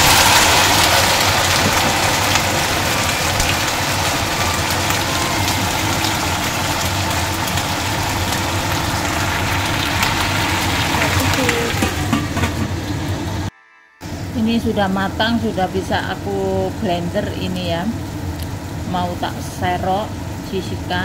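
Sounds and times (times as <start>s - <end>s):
vegetables sizzling in hot oil: 0.0s - 13.5s, 15.1s - 21.0s
low steady hum: 0.0s - 21.0s.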